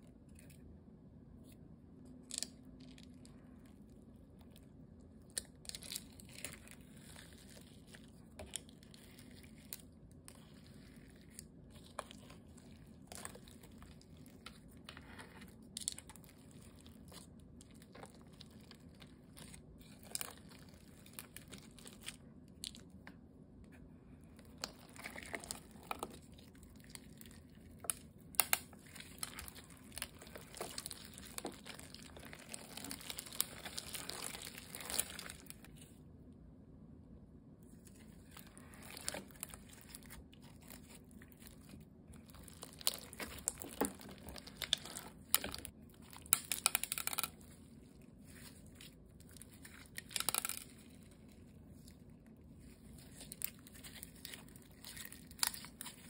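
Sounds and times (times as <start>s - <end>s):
slime clicking and crackling: 24.4s - 35.7s, 38.0s - 47.5s, 48.3s - 51.2s, 52.6s - 56.0s.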